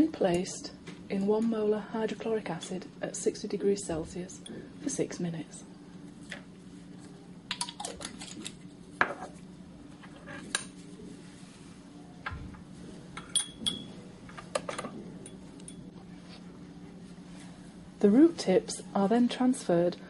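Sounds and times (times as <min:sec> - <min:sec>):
steady low hum: 0:00.0 - 0:20.0
glassware clinking: 0:13.2 - 0:14.0.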